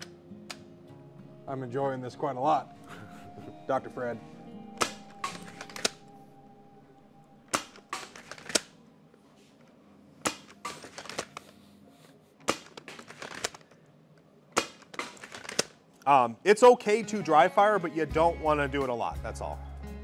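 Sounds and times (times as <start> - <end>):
foam dart blaster clacks and pops: 12.4 - 13.6, 14.6 - 15.7.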